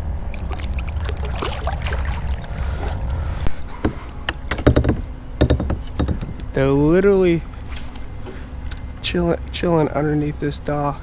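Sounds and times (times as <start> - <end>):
water splashing and trickling: 0.0 - 3.0
steady low rumble: 0.0 - 11.0.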